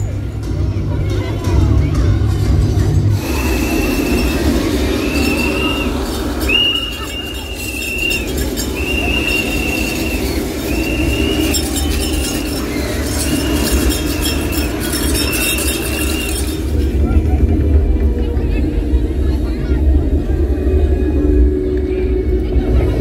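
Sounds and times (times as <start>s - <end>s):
steady low rumble: 15.5s - 23.0s.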